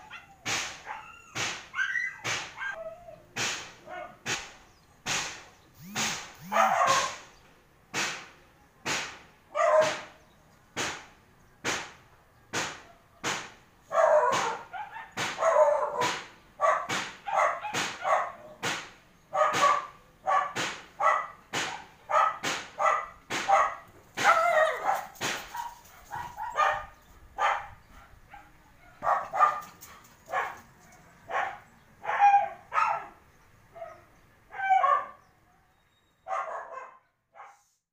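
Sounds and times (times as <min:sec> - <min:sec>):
dog barking: 0:00.0 - 0:01.1, 0:01.7 - 0:02.9, 0:03.8 - 0:04.3, 0:05.8 - 0:07.3, 0:09.5 - 0:10.2, 0:13.9 - 0:18.6, 0:19.3 - 0:35.2, 0:36.2 - 0:37.7.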